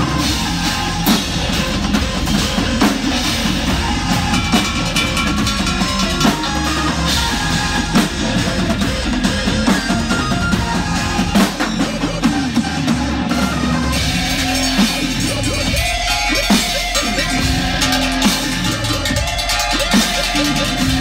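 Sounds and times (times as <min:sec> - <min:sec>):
drum hits and cymbals: 0:00.0 - 0:21.0
live rock music: 0:00.0 - 0:21.0.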